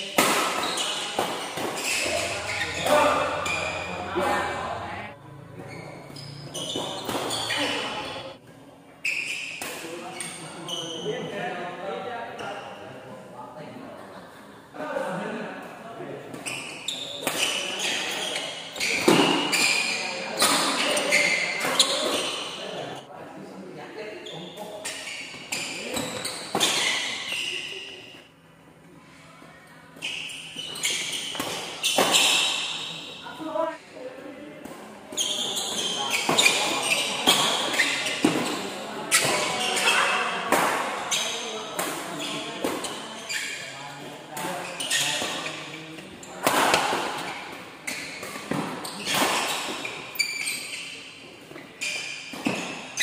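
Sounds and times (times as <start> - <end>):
rackets hitting shuttlecock: 0.1 - 4.5
shoes squeaking on court: 0.4 - 4.8, 5.6 - 8.4, 9.0 - 11.0, 16.3 - 22.6, 24.2 - 28.3, 29.9 - 33.4, 35.1 - 53.0.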